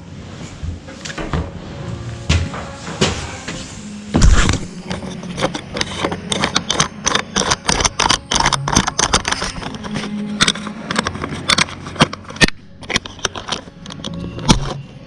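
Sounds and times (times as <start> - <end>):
handling knocks and clicks: 4.2 - 14.9.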